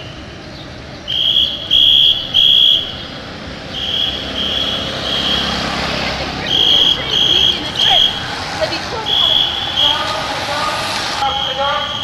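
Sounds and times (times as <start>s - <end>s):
shrill whistle blasts: 1.0s - 3.1s, 3.7s - 5.5s, 9.0s - 10.2s, 11.2s - 12.0s
hiss of passing bicycles: 3.8s - 12.0s.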